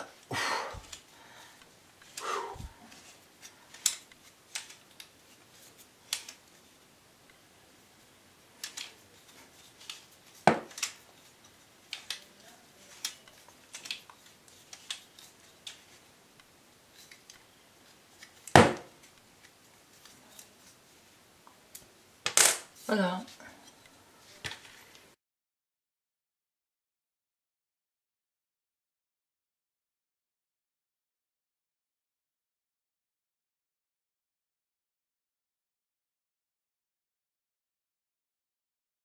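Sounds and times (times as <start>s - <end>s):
rifle parts clicking: 3.7s - 5.2s, 6.1s - 6.5s, 8.6s - 16.0s
sharp knocks: 18.6s - 18.9s.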